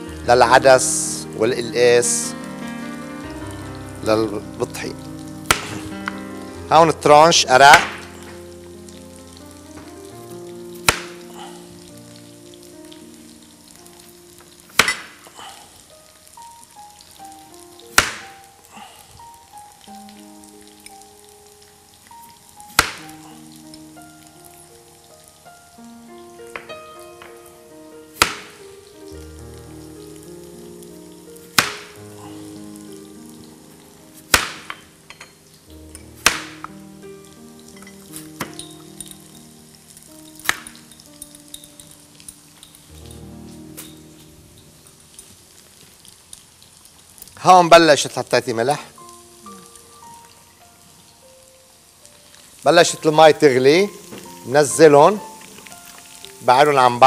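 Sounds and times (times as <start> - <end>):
background music: 0.0 - 46.2, 47.4 - 57.0
knife slicing and striking board: 5.5 - 5.9, 14.8 - 15.2, 18.0 - 18.3, 28.2 - 28.6, 31.6 - 31.9, 34.3 - 34.8, 36.2 - 36.6.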